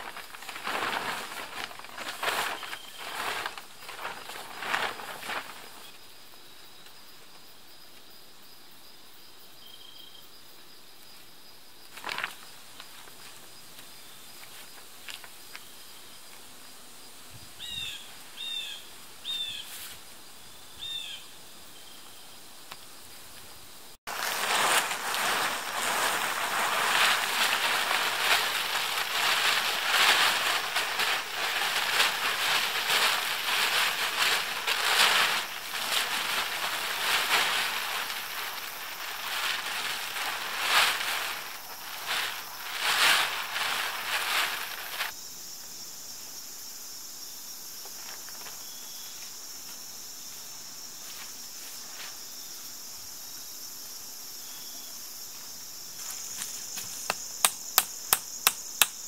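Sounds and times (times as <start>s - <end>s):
plastic tarp crinkling: 0.0s - 6.0s, 11.9s - 13.1s, 24.1s - 45.1s.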